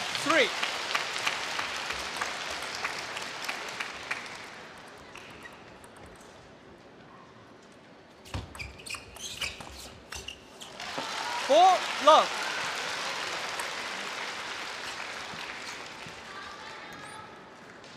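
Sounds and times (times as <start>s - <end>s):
crowd noise: 0.0s - 5.1s, 10.8s - 17.9s.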